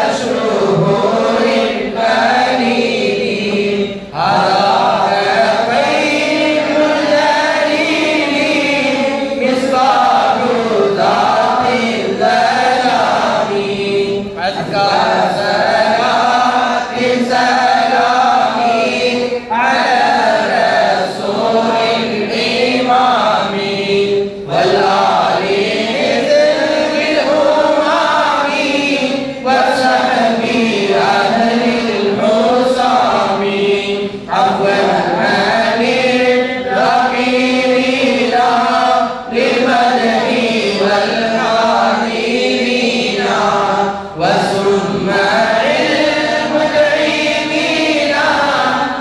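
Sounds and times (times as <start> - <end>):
man chanting into a microphone: 0.0 - 49.0.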